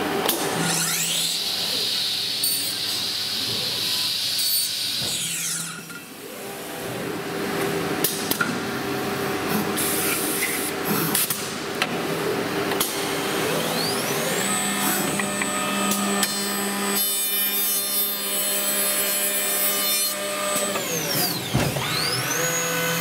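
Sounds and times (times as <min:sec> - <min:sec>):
machine spindle high whine: 0:12.9 - 0:23.0.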